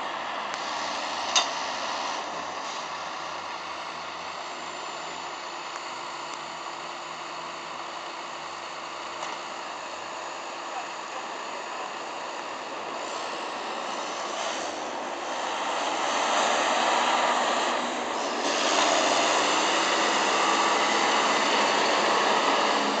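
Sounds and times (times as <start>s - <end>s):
snow plough rig on road: 0.0s - 23.0s
tractor engine passing: 9.5s - 23.0s.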